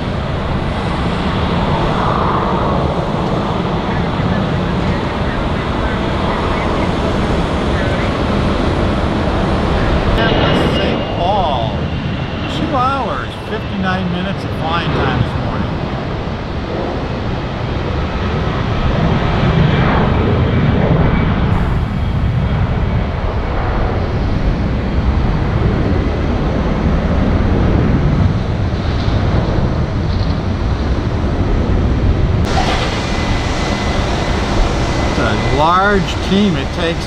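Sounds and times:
jet airliner roar: 0.0s - 37.0s
airport ramp hiss: 32.5s - 37.0s
faint high whine: 32.5s - 37.0s.

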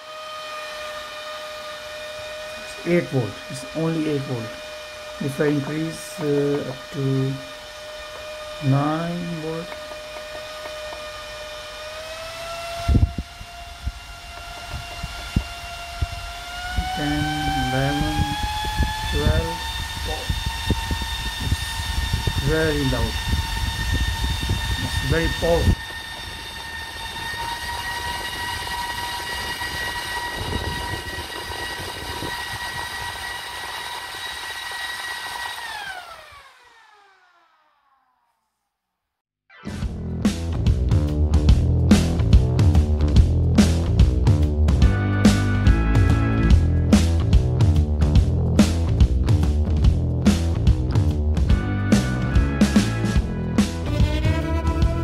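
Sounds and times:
fan whining: 0.0s - 37.4s, 39.9s - 55.0s
server fan high whine: 11.1s - 33.8s.

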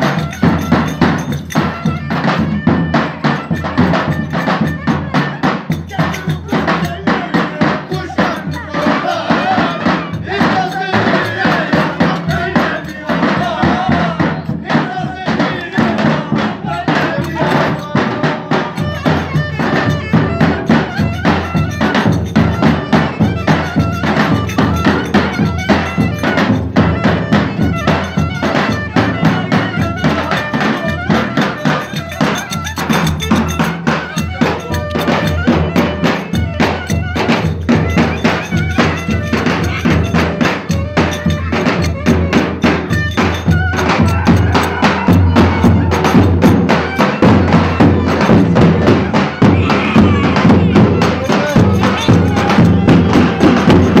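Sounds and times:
clarinet melody: 0.0s - 6.6s, 18.8s - 54.0s
bass drum beating fast rhythm: 0.0s - 54.0s
clacking percussion: 0.0s - 54.0s.

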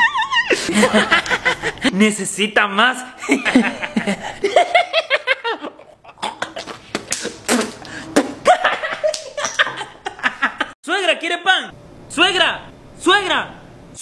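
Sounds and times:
man laughing: 0.0s - 1.9s, 3.2s - 7.4s, 8.2s - 10.8s.

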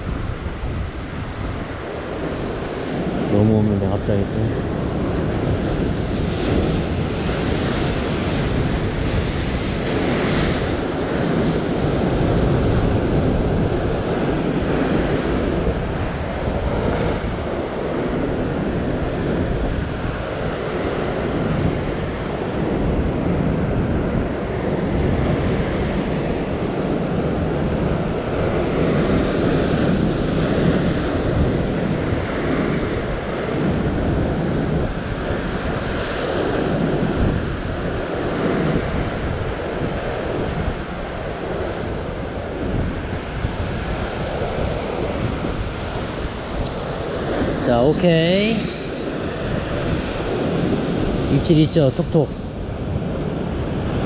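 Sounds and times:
wind buffeting microphone: 0.0s - 54.0s
surf breaking over rocks: 3.0s - 22.3s.

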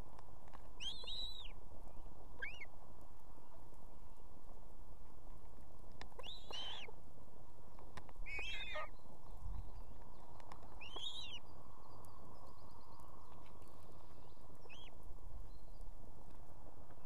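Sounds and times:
osprey high whistled calls: 0.8s - 1.6s, 2.4s - 2.7s, 6.2s - 6.9s, 8.2s - 9.0s, 10.8s - 11.5s, 14.6s - 14.9s.

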